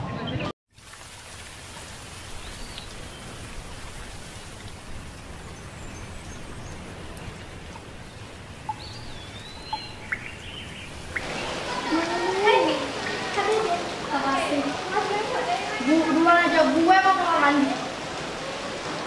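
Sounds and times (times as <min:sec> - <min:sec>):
outdoor background hiss: 0:00.7 - 0:19.0
faint high chirping calls: 0:08.0 - 0:12.0.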